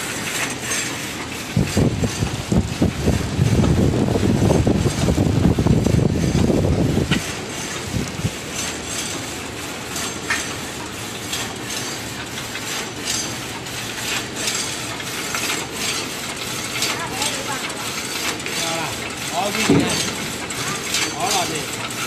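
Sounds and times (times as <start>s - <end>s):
machine clattering and clicking: 0.0s - 22.0s
heavy low rumble: 1.6s - 7.2s.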